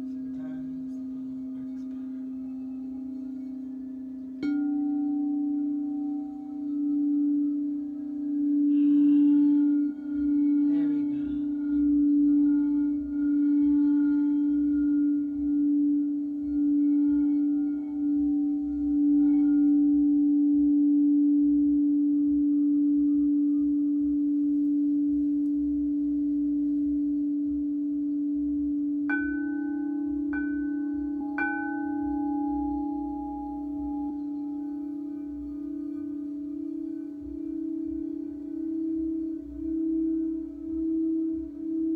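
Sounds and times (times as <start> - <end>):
singing bowl low steady tone: 0.0 - 41.9.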